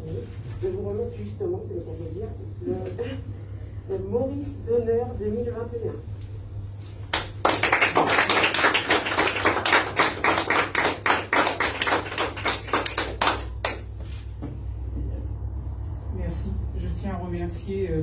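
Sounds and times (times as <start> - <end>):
audience applauding: 7.1 - 13.8.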